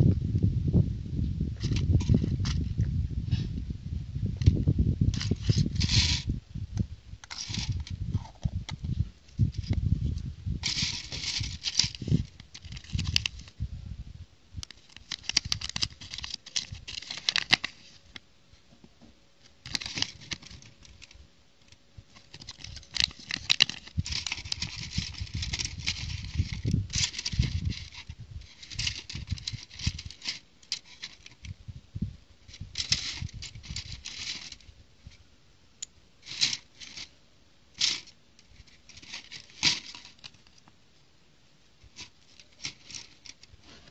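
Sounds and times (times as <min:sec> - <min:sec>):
paper sheet rustling: 0:05.1 - 0:06.3, 0:07.2 - 0:08.3, 0:10.6 - 0:13.5, 0:14.7 - 0:18.0, 0:19.6 - 0:21.2, 0:22.1 - 0:31.5, 0:32.5 - 0:34.7, 0:36.2 - 0:37.1, 0:37.8 - 0:40.6, 0:41.8 - 0:43.9
plastic packaging crinkling: 0:07.2 - 0:08.0, 0:10.6 - 0:13.5, 0:14.6 - 0:18.0, 0:19.6 - 0:21.2, 0:22.1 - 0:31.5, 0:37.8 - 0:40.7, 0:41.9 - 0:43.9.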